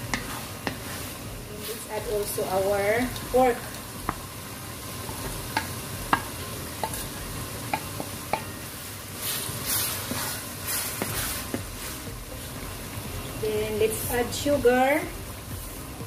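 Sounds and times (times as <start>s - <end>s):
spatula scraping a wok: 0.0s - 2.6s, 6.8s - 7.2s, 9.2s - 12.6s
oil sizzling in a wok: 0.0s - 16.0s.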